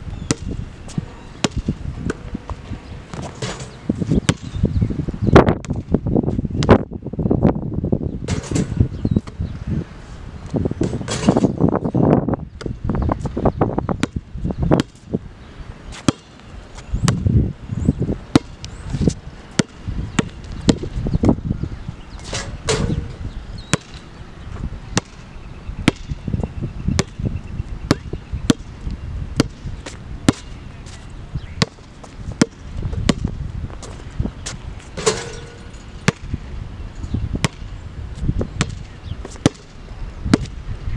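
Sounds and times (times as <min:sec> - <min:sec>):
dull low thuds: 0:31.6 - 0:33.9.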